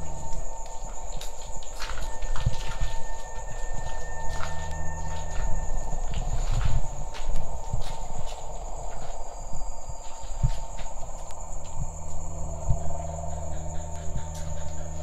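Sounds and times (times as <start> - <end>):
footsteps: 0.0 - 9.2
crickets chirring: 0.0 - 15.0.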